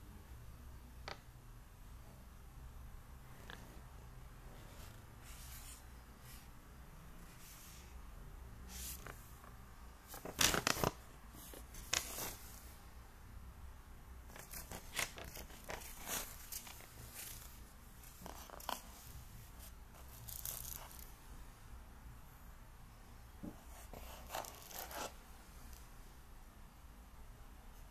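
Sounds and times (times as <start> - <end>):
paper rustling and crinkling: 10.1 - 12.6, 14.3 - 21.1.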